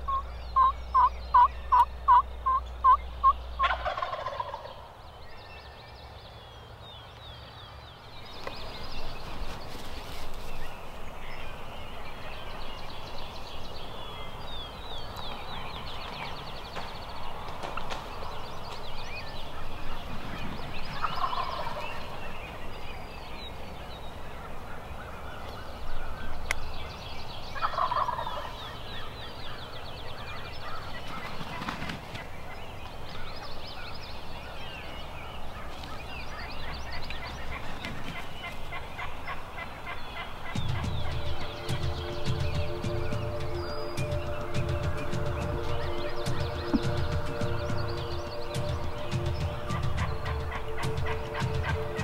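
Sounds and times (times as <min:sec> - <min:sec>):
turkey yelps: 0:00.1 - 0:03.0
turkey gobbling: 0:00.1 - 0:04.9, 0:21.0 - 0:21.8, 0:27.6 - 0:28.6, 0:36.4 - 0:43.4, 0:48.6 - 0:52.0.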